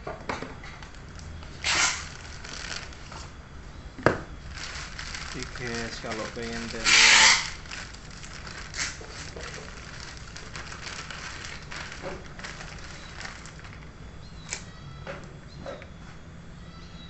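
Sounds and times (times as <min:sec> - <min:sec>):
plastic wrapping crinkling: 0:00.8 - 0:03.4, 0:04.4 - 0:14.7.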